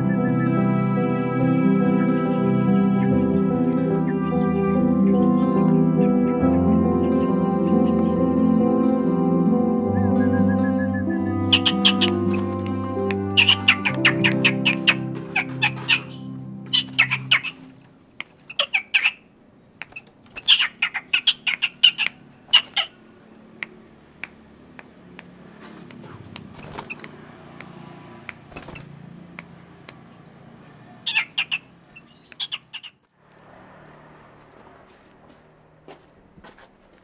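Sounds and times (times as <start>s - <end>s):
bird-like chirping: 10.2s - 23.8s, 30.6s - 33.1s.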